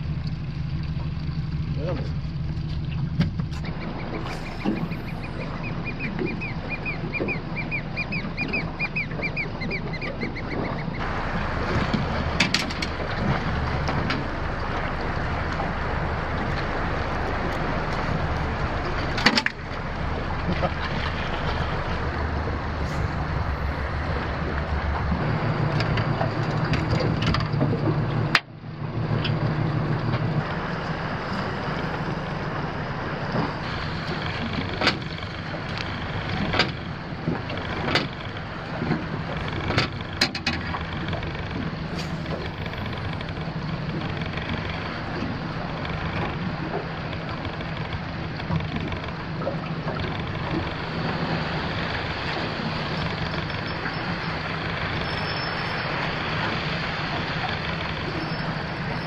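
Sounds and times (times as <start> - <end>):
outboard motor idling: 0.0 - 59.0
water noise: 0.0 - 59.0
wind: 0.0 - 59.0
bird calling repeated notes: 3.7 - 11.0.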